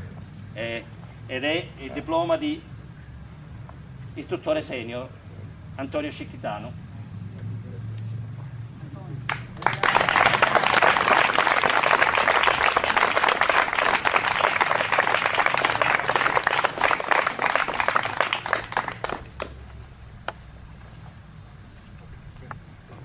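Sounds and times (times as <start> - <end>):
audience applauding: 9.3 - 19.6.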